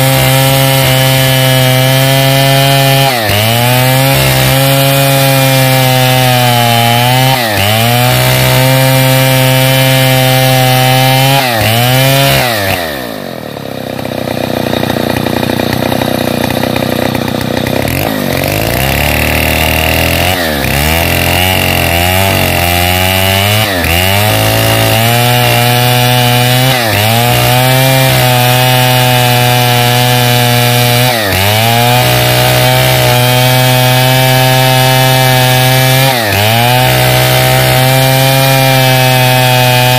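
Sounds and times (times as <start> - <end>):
chainsaw cutting log: 0.0 - 39.9
chainsaw idling: 0.0 - 39.9.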